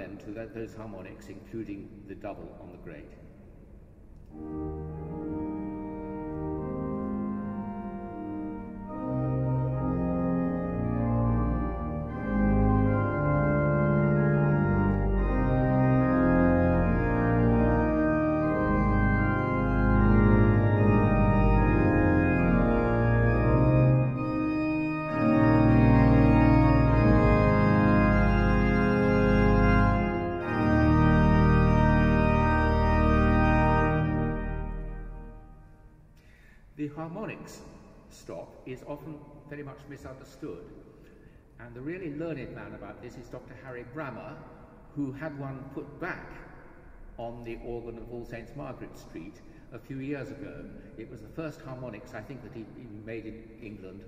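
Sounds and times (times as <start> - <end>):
pipe organ playing full chords: 4.3 - 36.5.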